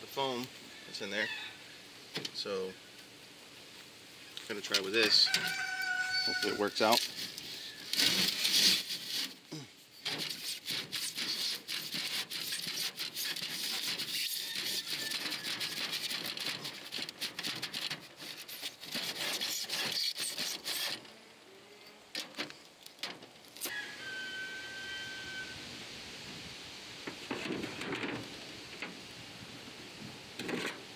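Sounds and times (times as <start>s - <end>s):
hand saw rasping through foam: 7.9s - 9.4s, 10.0s - 21.0s.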